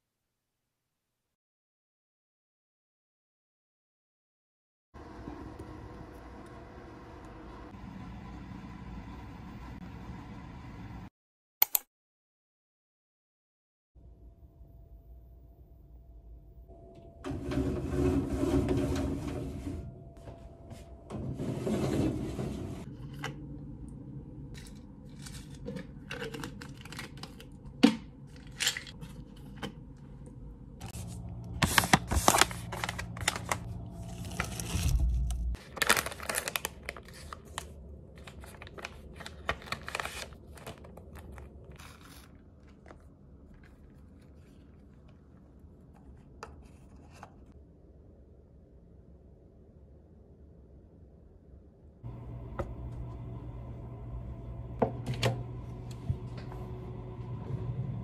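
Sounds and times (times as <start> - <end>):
low steady hum: 14.0 - 58.0.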